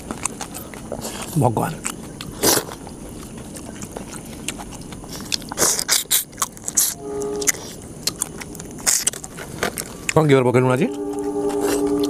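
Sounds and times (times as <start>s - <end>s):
wet chewing and lip-smacking: 0.0s - 10.2s
person humming mm: 10.9s - 12.0s.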